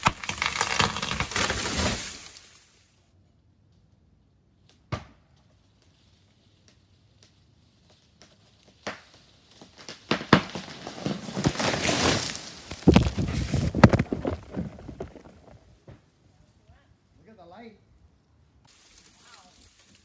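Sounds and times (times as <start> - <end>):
tree trunk cracking and crashing: 0.0 - 2.6, 5.7 - 15.9
branches tearing through foliage: 0.0 - 2.8, 5.6 - 15.8, 18.7 - 20.0.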